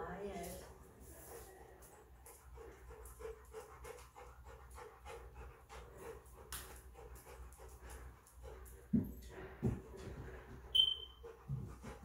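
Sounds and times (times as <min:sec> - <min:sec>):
dog panting: 0:00.1 - 0:12.0.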